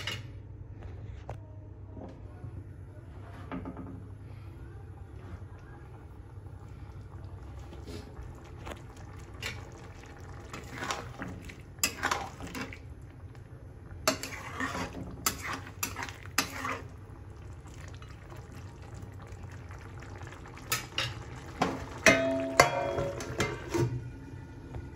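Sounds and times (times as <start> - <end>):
metal spatula scraping a steel pan: 14.1 - 17.0.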